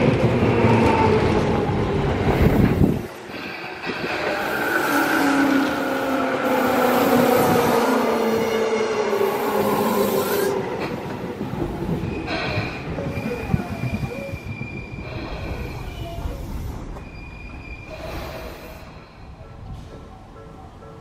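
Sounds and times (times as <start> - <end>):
wheels squealing on rails: 2.2 - 20.8.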